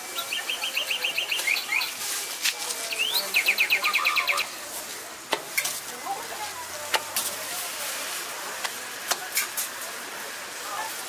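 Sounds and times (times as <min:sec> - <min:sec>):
songbird trilling: 0:00.2 - 0:01.9, 0:02.9 - 0:04.5.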